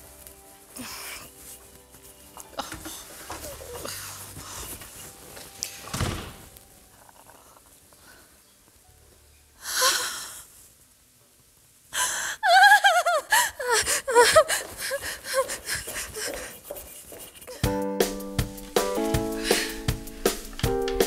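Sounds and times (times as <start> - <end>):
woman gasping: 11.9 - 17.7, 19.3 - 20.0
woman squealing: 12.4 - 15.6.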